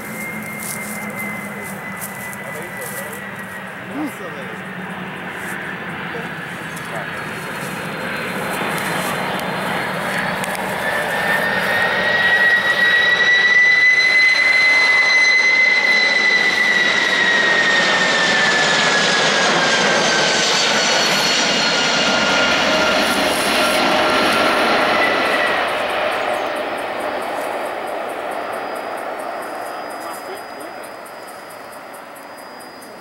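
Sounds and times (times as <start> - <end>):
jet engines roaring overhead: 0.0 - 33.0.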